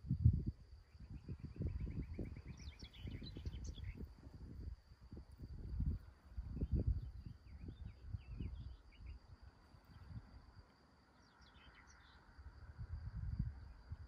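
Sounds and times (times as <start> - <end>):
wind buffeting microphone: 0.0 - 10.4, 12.5 - 14.0
faint bird chirps: 0.8 - 4.6, 6.4 - 10.2, 11.0 - 12.5.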